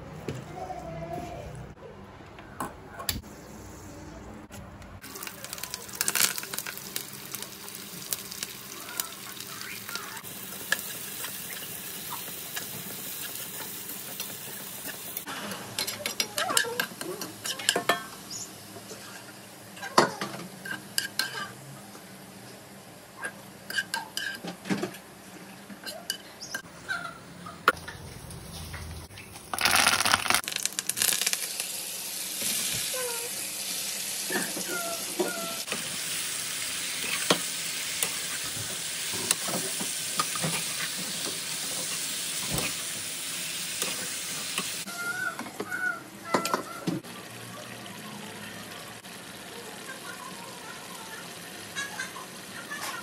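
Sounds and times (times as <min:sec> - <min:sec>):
onions sizzling in oil: 0:05.0 - 0:19.9, 0:28.1 - 0:45.1, 0:47.0 - 0:53.0.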